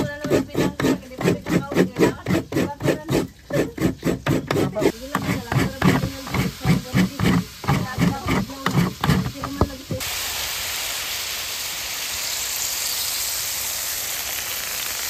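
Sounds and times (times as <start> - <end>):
rapid rhythmic scraping: 0.0 - 10.0.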